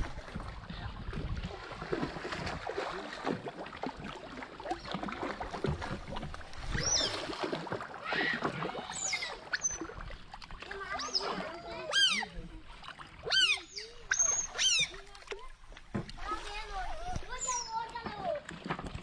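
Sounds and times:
water splashing and churning: 0.0s - 19.0s
otters chirping: 13.3s - 15.0s.

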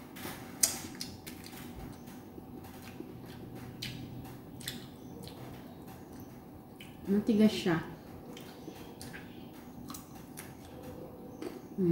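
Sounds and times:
low steady hum: 0.0s - 11.9s.

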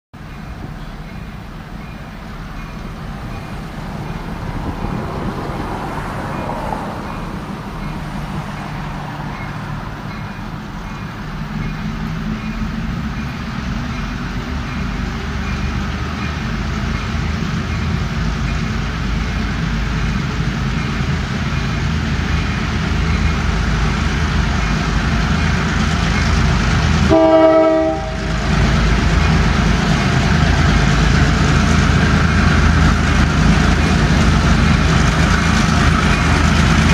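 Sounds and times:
diesel locomotive engines rumbling: 0.2s - 36.9s
locomotive horn blast: 27.0s - 28.4s.

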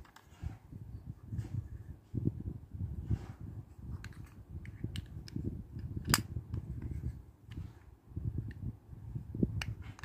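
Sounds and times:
plastic toy lid clicks: 4.0s - 6.3s, 9.6s - 10.0s.

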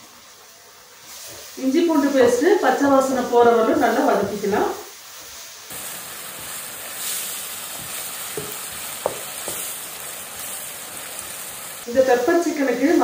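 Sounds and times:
onions sizzling in hot oil: 0.0s - 13.0s
spatula scraping and tapping pan: 7.8s - 9.8s.

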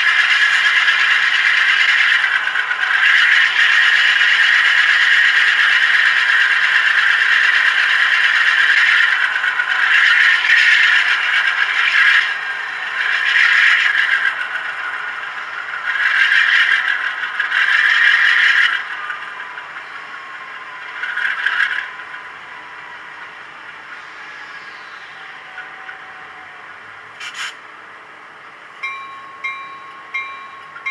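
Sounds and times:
model train scraping and rattling: 0.0s - 26.5s, 27.1s - 27.8s.

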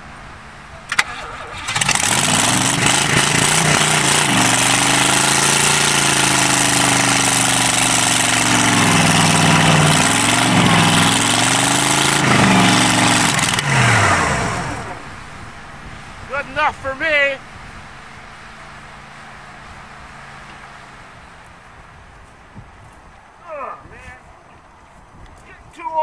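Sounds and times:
engine revving: 0.9s - 15.3s.

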